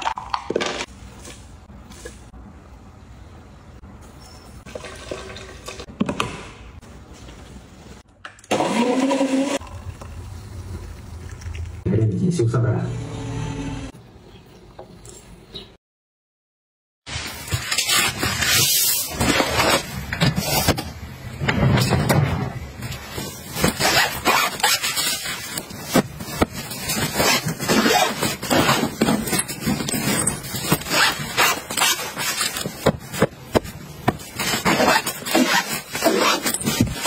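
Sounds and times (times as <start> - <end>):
fabric rustling and scraping: 22.7 - 37.0.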